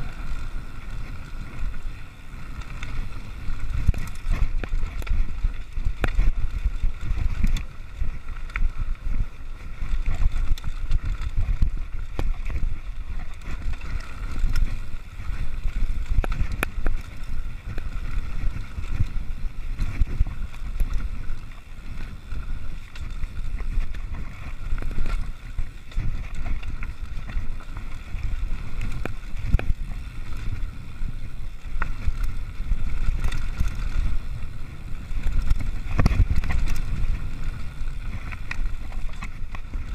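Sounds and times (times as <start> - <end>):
bike rattling on dirt and stones: 0.0 - 39.9
wind buffeting microphone: 0.0 - 39.9
small clicks and knocks: 3.7 - 6.4.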